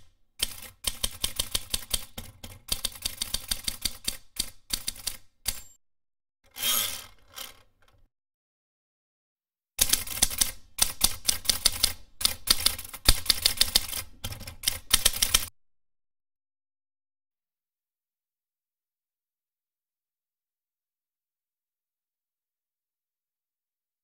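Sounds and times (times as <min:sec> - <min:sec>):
typewriter keys clacking: 0:00.4 - 0:05.7, 0:09.8 - 0:15.5.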